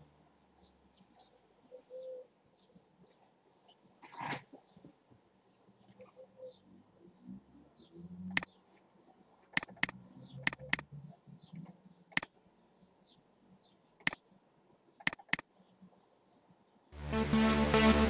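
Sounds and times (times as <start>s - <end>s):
computer mouse clicking: 9.5s - 10.8s, 15.0s - 15.4s.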